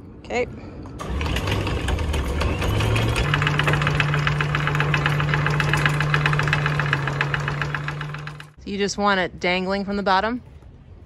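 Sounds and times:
windlass motor hum: 1.0s - 8.6s.

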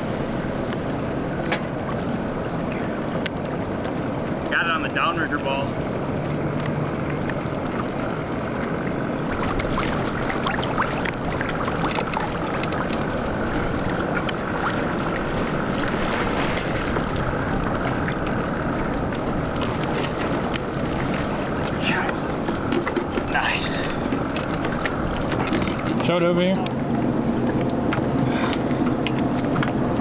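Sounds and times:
water noise: 0.0s - 30.0s
wind: 0.0s - 30.0s.

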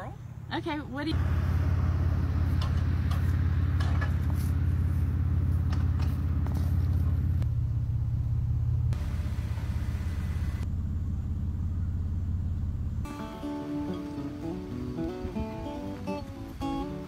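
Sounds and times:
acoustic guitar strumming: 13.1s - 17.0s.

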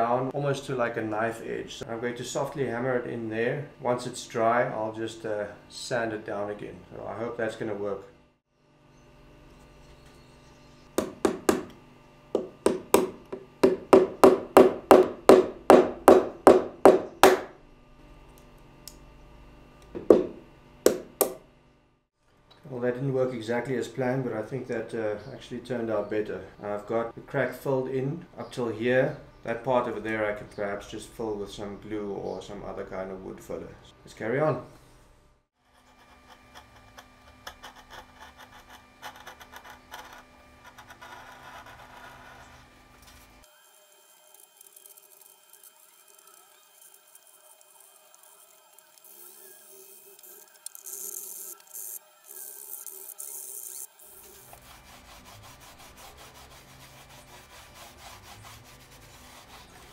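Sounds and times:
hammer tapping wood: 11.0s - 11.7s, 12.4s - 17.4s, 20.0s - 21.4s
wood chisel scraping: 35.7s - 43.4s, 44.2s - 59.9s.

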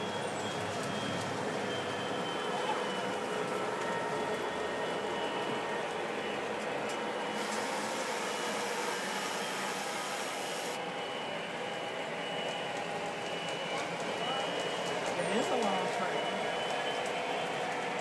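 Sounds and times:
model train wheels rumbling on track: 6.9s - 10.8s
high hiss: 7.4s - 10.8s.

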